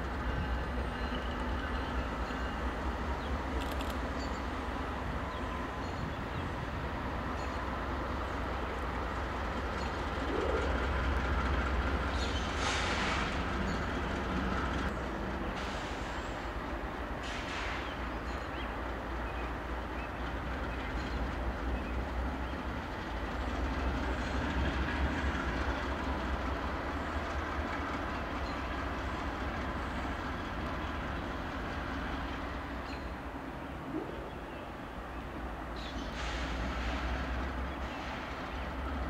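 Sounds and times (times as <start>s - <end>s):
locomotive engine rumble: 0.0s - 39.0s.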